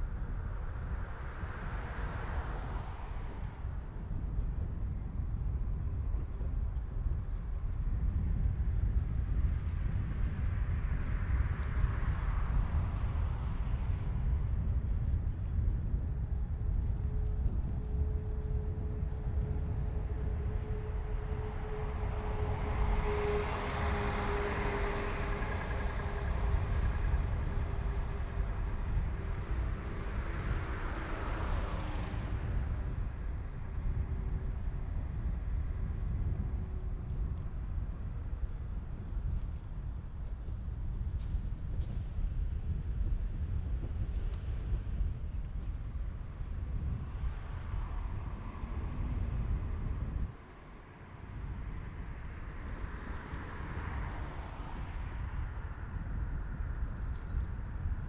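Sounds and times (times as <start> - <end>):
rumble of wind and tyres: 0.0 - 58.0
bus passing: 11.6 - 37.4, 46.0 - 58.0
vehicle passing: 18.7 - 33.2, 46.9 - 56.2.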